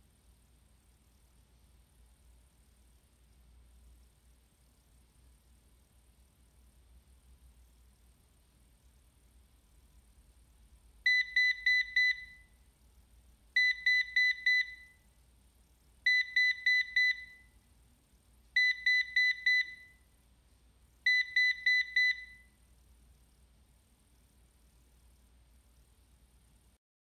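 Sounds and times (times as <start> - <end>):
robot vacuum high beeps: 11.1 - 12.5, 13.6 - 15.0, 16.1 - 17.5, 18.6 - 20.0, 21.1 - 22.5.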